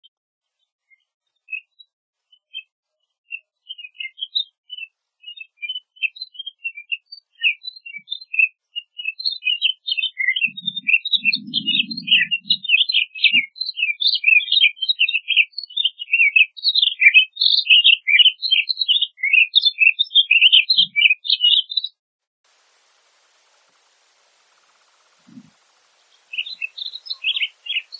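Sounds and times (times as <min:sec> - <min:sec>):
bird warbling song: 0:00.9 - 0:22.0, 0:22.8 - 0:27.9
faint low rumble: 0:10.5 - 0:12.8, 0:22.6 - 0:26.3.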